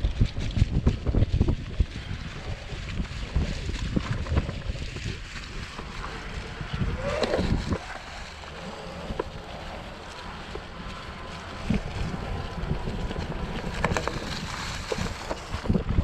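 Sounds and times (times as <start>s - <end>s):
mountain bike rolling on dirt trail: 0.0s - 16.0s
wind buffeting microphone: 0.0s - 16.0s.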